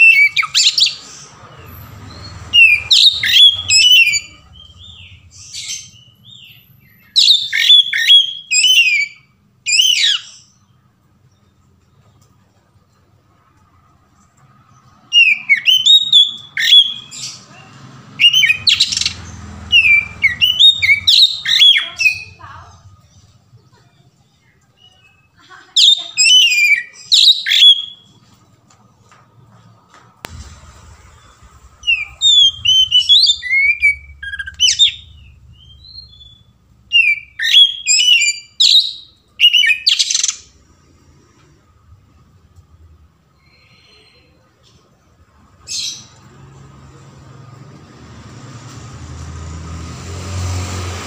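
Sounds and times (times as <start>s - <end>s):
songbird singing whistled notes: 2.1s - 10.7s, 15.1s - 17.4s, 18.2s - 22.4s, 24.7s - 28.1s, 31.1s - 40.4s
harsh rasping bird notes: 30.3s - 40.6s.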